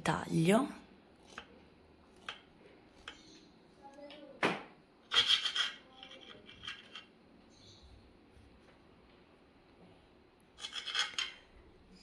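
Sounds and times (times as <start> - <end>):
knife rasping through cake crust: 1.2 - 3.3
knife scraping on slate board: 1.2 - 3.4, 5.1 - 7.1, 10.6 - 11.5.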